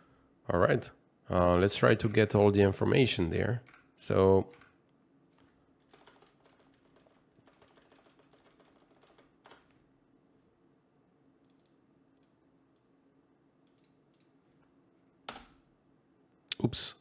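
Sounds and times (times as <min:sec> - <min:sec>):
keyboard typing: 0:04.5 - 0:09.8.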